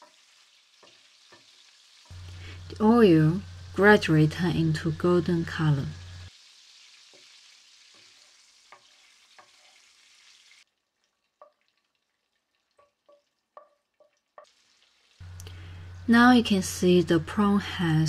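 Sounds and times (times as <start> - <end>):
frying sizzle in oil: 0.0 - 18.0
wooden spoon knocking a pan: 12.7 - 14.6.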